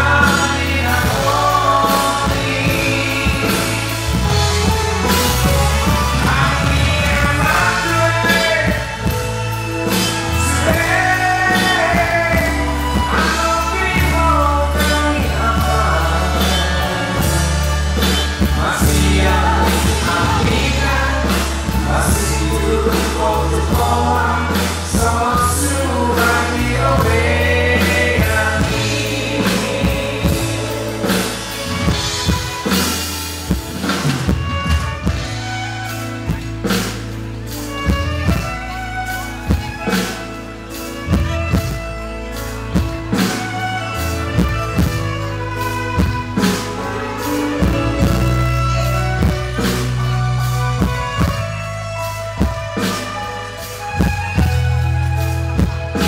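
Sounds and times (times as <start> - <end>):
women singing along: 0.0 - 9.3, 9.9 - 32.3
man singing into microphone: 0.0 - 32.7
musical accompaniment with bass: 0.0 - 56.0.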